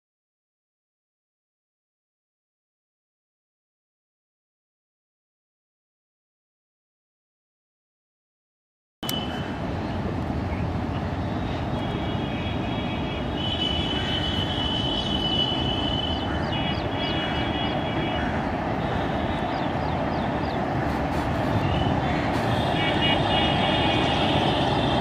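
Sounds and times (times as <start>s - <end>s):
train rumbling across a bridge: 12.6s - 25.0s
high steady whine: 12.7s - 25.0s.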